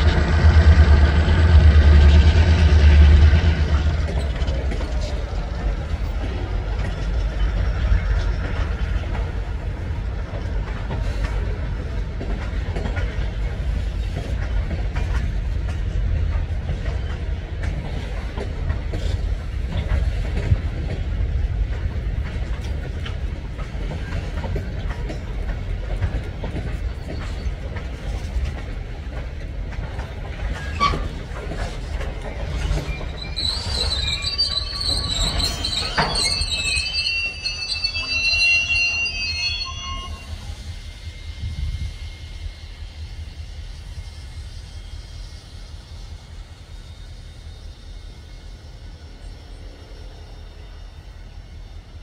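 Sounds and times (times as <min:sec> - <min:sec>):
train wheels rumbling on rails: 0:00.0 - 0:52.0
wheel squeal: 0:30.5 - 0:42.2.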